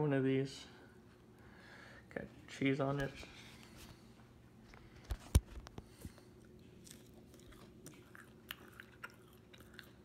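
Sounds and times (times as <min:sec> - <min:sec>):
chewing crunchy chip: 0:06.3 - 0:10.0.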